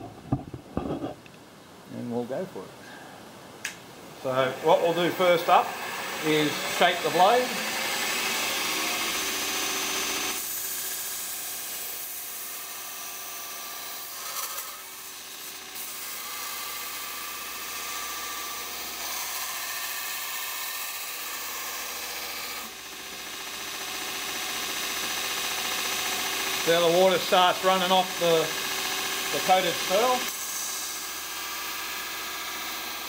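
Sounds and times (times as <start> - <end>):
belt grinder grinding steel: 4.4 - 33.0.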